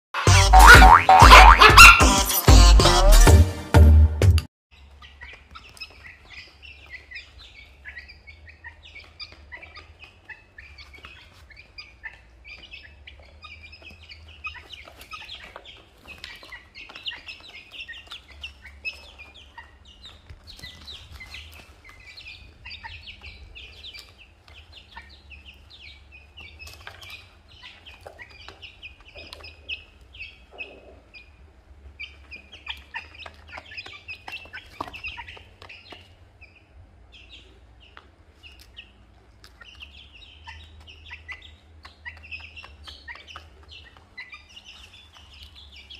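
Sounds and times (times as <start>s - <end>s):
chicks and ducklings peeping: 0.3s - 2.1s, 4.8s - 45.9s
beaks pecking in plastic tray: 4.9s - 30.4s, 32.0s - 36.4s.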